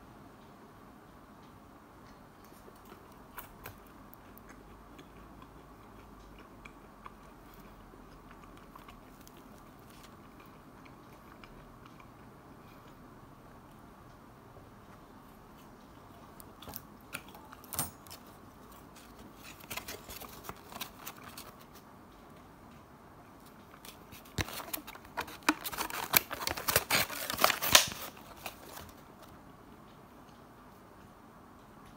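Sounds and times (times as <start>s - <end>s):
foam box crackling when squeezed: 24.1s - 29.0s
foam box lid creaking and clicking: 24.2s - 29.0s.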